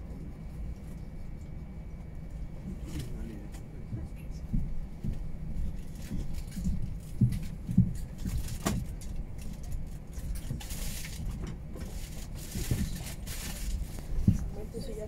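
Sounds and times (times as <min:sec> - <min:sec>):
aircraft cabin rumble: 0:00.0 - 0:15.0.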